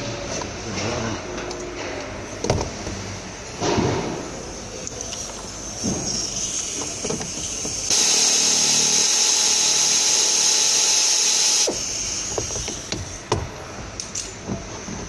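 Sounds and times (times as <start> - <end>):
power tool hissing: 5.8 - 13.0.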